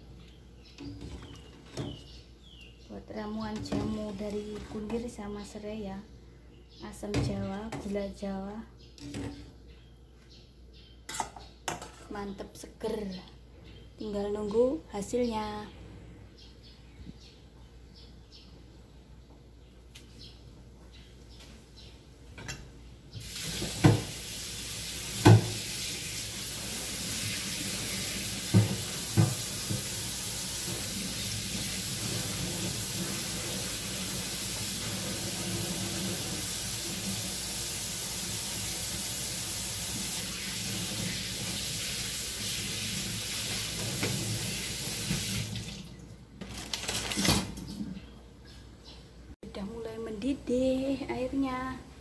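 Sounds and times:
kitchen tap running: 0:23.2 - 0:46.0.

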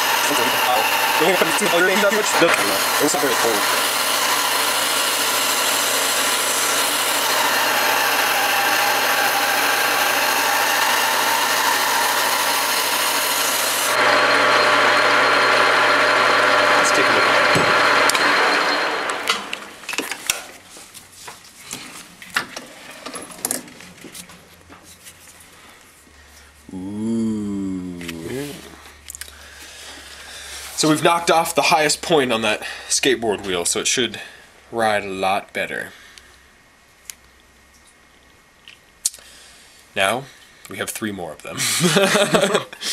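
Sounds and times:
rasp scraping spinning wheel: 0:00.0 - 0:19.6.

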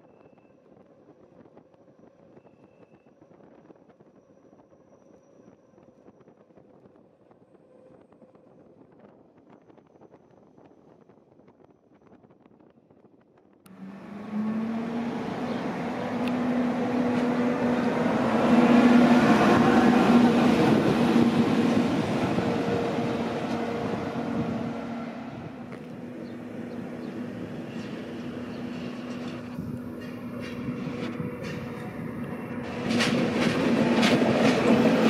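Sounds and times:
electric locomotive humming: 0:13.7 - 0:35.0.

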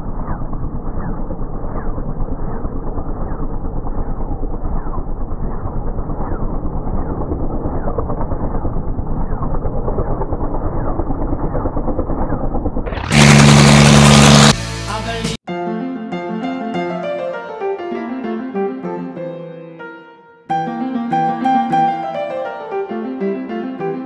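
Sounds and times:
helicopter rotor beating: 0:00.0 - 0:14.7
piston engine drone: 0:00.0 - 0:14.9
loud music: 0:13.0 - 0:15.4.

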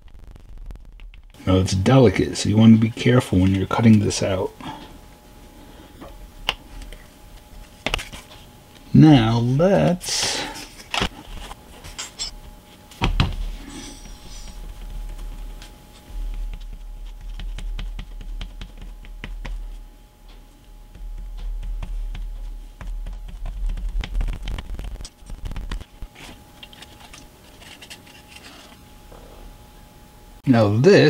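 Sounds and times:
faint steady hum: 0:00.0 - 0:31.0
taps and rustles of wood strips: 0:06.4 - 0:08.4, 0:12.9 - 0:28.8.

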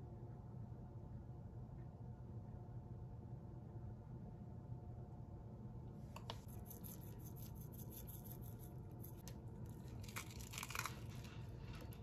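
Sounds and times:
granola sprinkled over bowl: 0:06.2 - 0:12.0.

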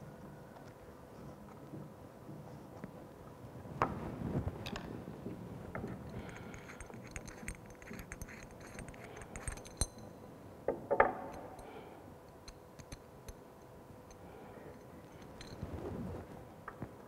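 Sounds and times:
pipe union clicking and clinking: 0:05.8 - 0:10.2, 0:12.3 - 0:15.6
rattle of knocks: 0:10.7 - 0:11.4.

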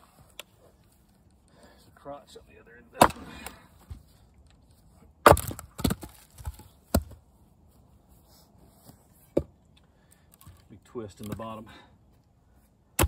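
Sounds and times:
axe splitting firewood: 0:02.9 - 0:04.2, 0:04.9 - 0:07.2, 0:09.3 - 0:11.6.

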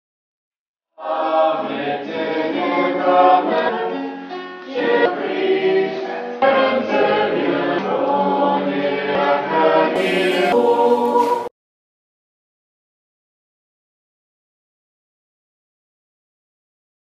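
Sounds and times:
small choir singing a cappella: 0:01.0 - 0:11.5.

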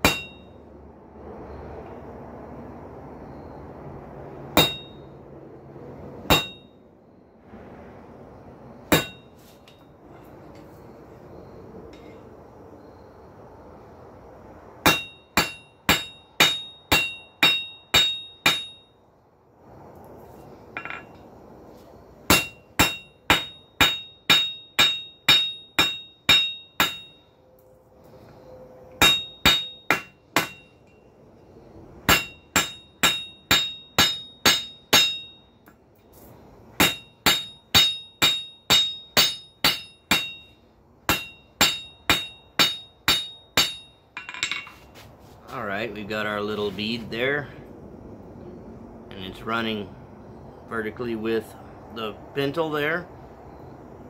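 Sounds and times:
hammer striking steel on anvil: 0:00.0 - 0:00.6, 0:04.6 - 0:05.1, 0:06.2 - 0:06.7, 0:08.9 - 0:09.8, 0:14.8 - 0:18.9, 0:20.8 - 0:21.2, 0:22.3 - 0:27.2, 0:29.0 - 0:31.0, 0:32.1 - 0:35.8, 0:36.8 - 0:44.8.

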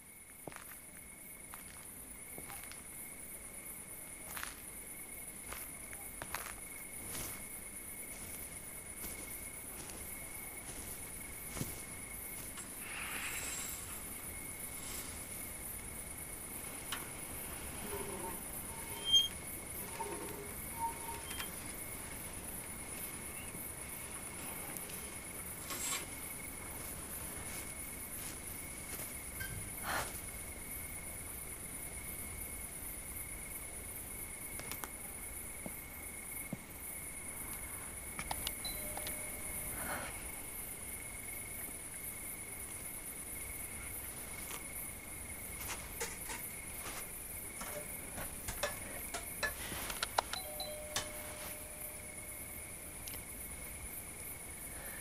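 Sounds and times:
crickets chirring: 0:00.0 - 0:55.0
faint clicks and knocks: 0:47.6 - 0:51.3.

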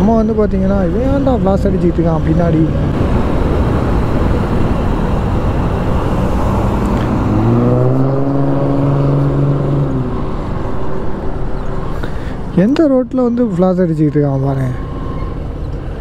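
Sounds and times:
motorcycle wind and road noise: 0:00.0 - 0:16.0
vehicle engine note rising: 0:00.9 - 0:12.5.

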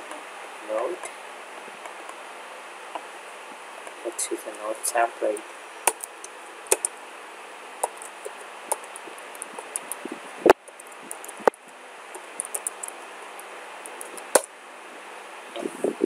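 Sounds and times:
steady hiss: 0:00.0 - 0:16.0
keyboard keys clicking: 0:05.9 - 0:06.9, 0:07.8 - 0:13.0, 0:13.8 - 0:14.5.

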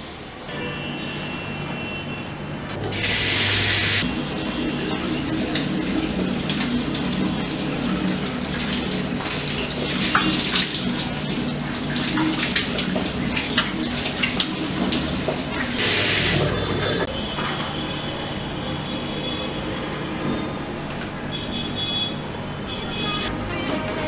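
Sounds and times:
tap water running into sink: 0:02.9 - 0:17.1
water splashes: 0:03.0 - 0:17.1.

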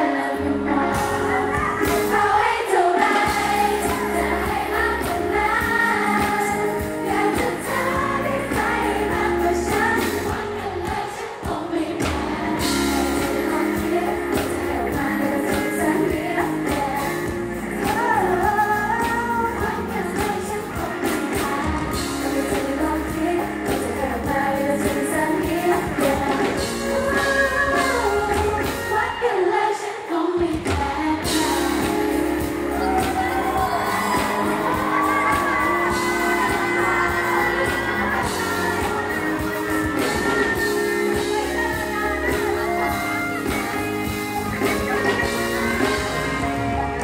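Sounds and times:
bass-heavy backing track: 0:00.0 - 0:11.1, 0:11.9 - 0:29.2, 0:30.6 - 0:47.0
girl group singing: 0:00.0 - 0:47.0
fans shouting along: 0:31.4 - 0:47.0.

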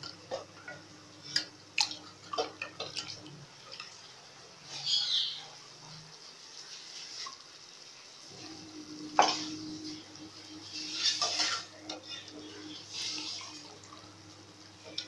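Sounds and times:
liquid splashing: 0:01.2 - 0:05.0
metal spoon scraping pots: 0:08.4 - 0:14.0.

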